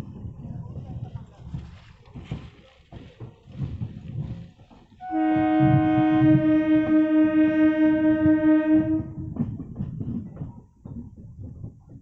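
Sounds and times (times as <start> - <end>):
train clattering over track: 0.0 - 12.0
train horn blast: 5.0 - 9.4.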